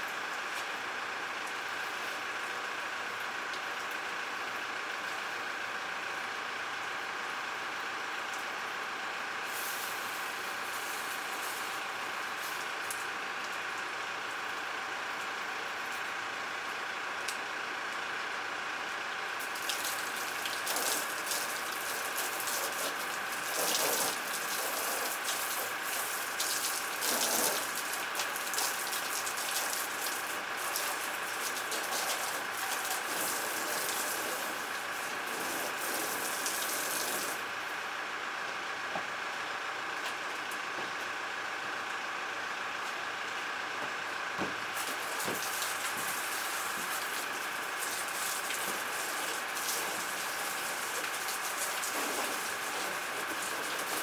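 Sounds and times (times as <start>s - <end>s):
hose spraying water on plastic: 9.4s - 13.2s, 19.4s - 37.5s, 44.7s - 54.0s.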